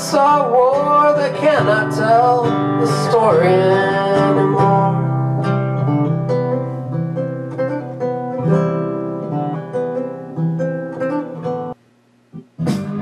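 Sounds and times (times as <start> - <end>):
acoustic guitar country music: 0.0 - 11.8, 12.4 - 13.0.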